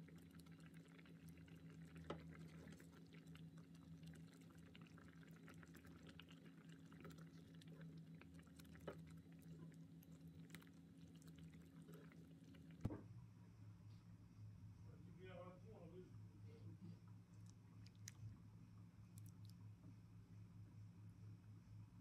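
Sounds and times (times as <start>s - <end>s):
steady low hum: 5.7s - 22.0s.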